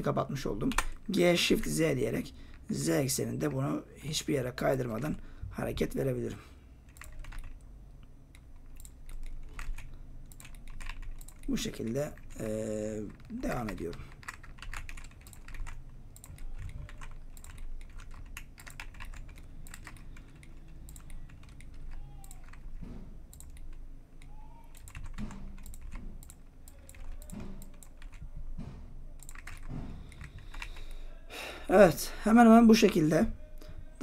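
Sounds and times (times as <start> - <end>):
faint low room hum: 0.0 - 34.0
keyboard keys clicking: 6.9 - 12.4, 13.0 - 28.3, 29.2 - 30.9.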